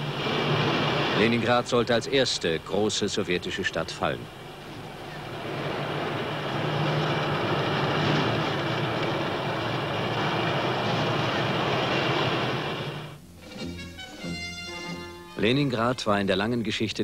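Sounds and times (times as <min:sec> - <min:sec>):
low hum: 0:00.0 - 0:14.0
tank and motorcycle engines: 0:00.0 - 0:15.8.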